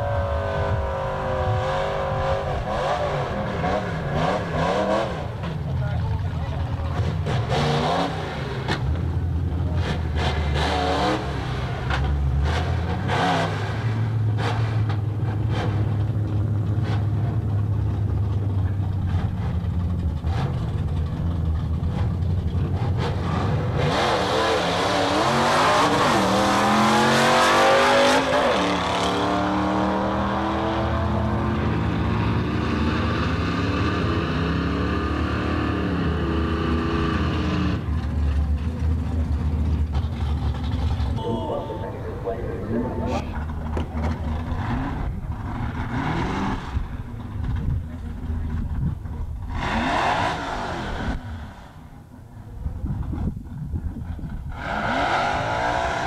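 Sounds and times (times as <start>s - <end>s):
drag car engine revving and launching: 9.7s - 16.2s, 21.9s - 38.1s, 40.0s - 48.6s, 49.4s - 51.8s, 54.5s - 56.0s.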